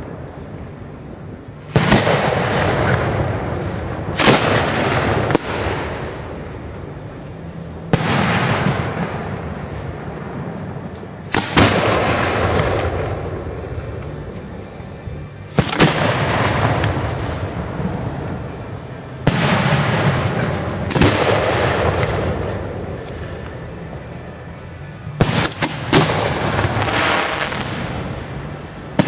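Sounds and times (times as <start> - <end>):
fireworks booming: 1.6 - 14.1, 15.5 - 24.1, 25.1 - 29.0
small firework bangs: 1.7 - 6.4, 10.3 - 13.2, 19.2 - 23.6.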